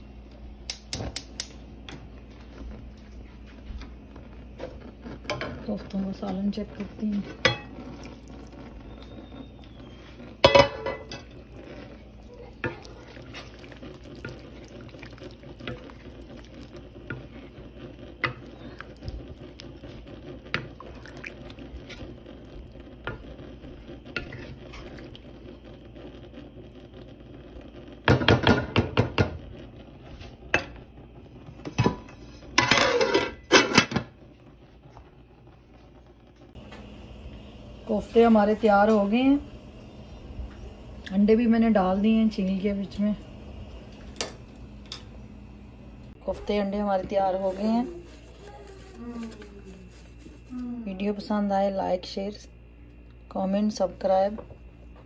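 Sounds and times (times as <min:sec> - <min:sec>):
rattling clatter of pot and lid: 0:31.6 - 0:34.2.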